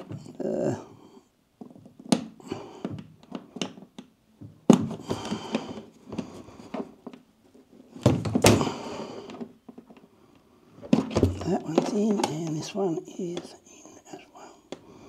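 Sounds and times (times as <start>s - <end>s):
plastic casing knocks and thunks: 1.6s - 7.2s, 8.0s - 9.9s, 10.8s - 12.5s.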